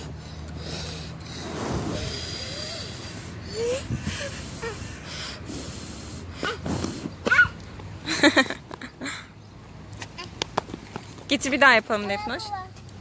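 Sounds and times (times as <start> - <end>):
breath puffing into microphone: 0.0 - 7.2
faint child voice: 7.2 - 7.6.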